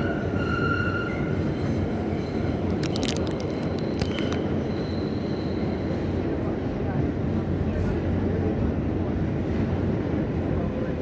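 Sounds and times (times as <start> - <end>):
wheels rumbling on rail: 0.0 - 11.0
high wheel squeal: 3.8 - 6.2.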